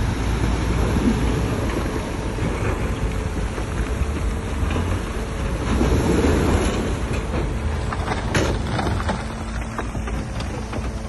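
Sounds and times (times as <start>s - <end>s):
diesel engine rumbling: 0.0s - 11.0s.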